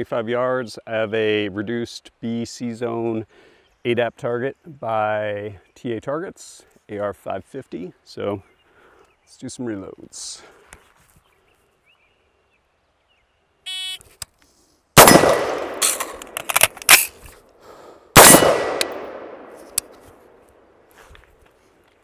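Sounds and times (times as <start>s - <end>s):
shot timer beep: 13.7s - 14.0s
rifle gunshots: 15.0s - 17.1s, 18.2s - 20.1s.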